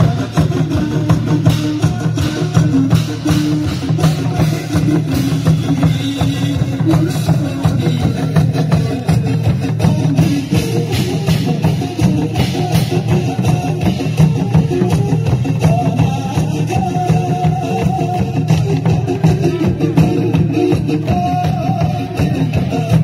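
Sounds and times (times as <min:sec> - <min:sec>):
drum kit beat: 0:00.0 - 0:23.0.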